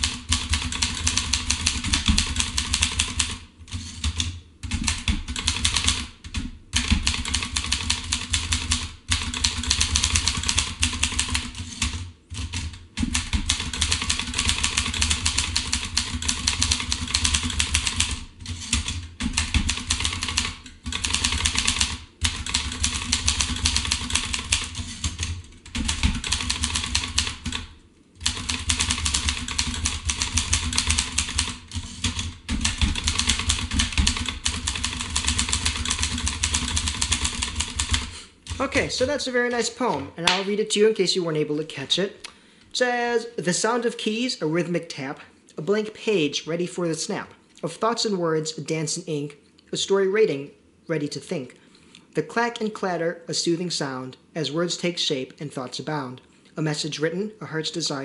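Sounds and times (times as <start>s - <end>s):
typewriter carriage return: 0.0s - 38.7s
typewriter keystrokes clattering: 0.0s - 38.7s.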